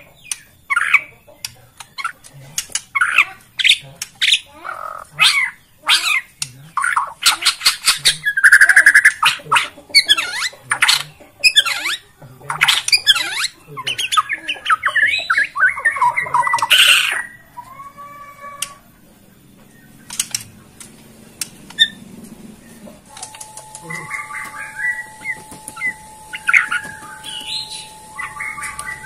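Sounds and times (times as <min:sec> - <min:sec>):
bird singing whistles and trills: 0:23.4 - 0:29.0.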